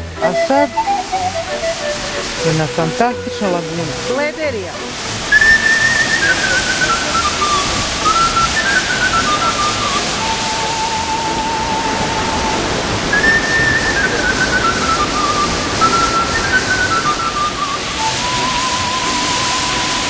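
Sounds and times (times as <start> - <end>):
whistle-like melody: 0.0 - 20.0
waterfall pouring into pool: 3.6 - 20.0.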